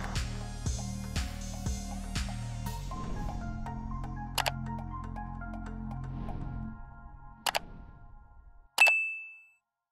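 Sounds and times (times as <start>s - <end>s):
electronic music: 0.0s - 6.8s.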